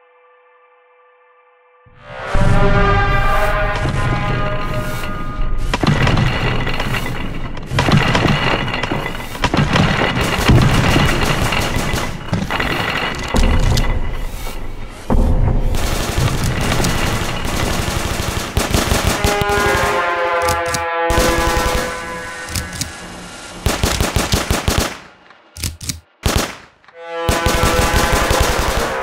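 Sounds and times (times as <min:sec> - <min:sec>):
dramatic music with held tones: 0:00.0 - 0:25.7, 0:26.8 - 0:29.0
rapid machine-gun fire: 0:09.4 - 0:13.6, 0:15.7 - 0:22.8, 0:23.6 - 0:25.2, 0:26.2 - 0:29.0.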